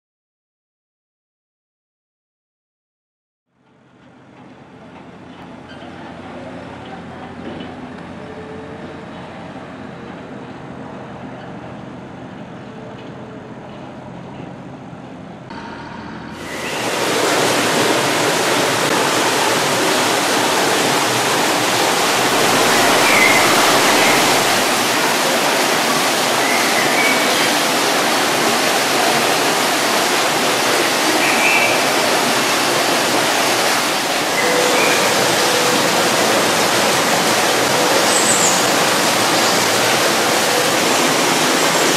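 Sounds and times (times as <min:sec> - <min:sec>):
rushing water: 0:16.4 - 0:41.9.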